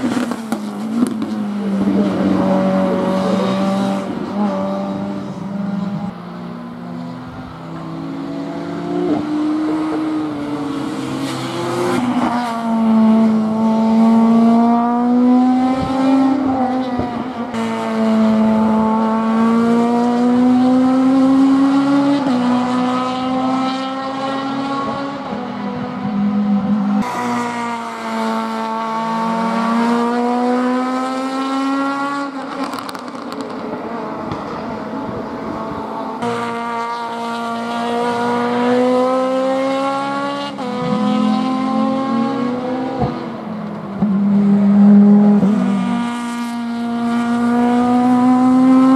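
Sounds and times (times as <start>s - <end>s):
race car engine accelerating: 7.0s - 48.9s.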